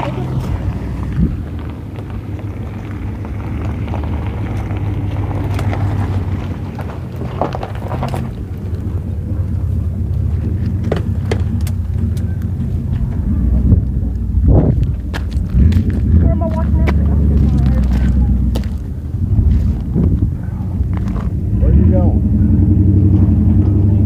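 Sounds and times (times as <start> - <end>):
engine idling: 0.0 - 24.0
footsteps on gravel and twigs: 0.1 - 13.3, 14.1 - 21.3.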